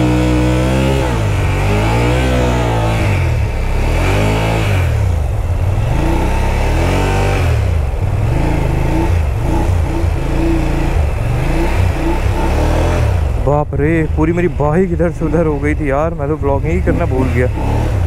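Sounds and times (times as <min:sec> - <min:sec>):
motorcycle engine revving: 0:00.0 - 0:18.0
person talking: 0:13.4 - 0:17.6.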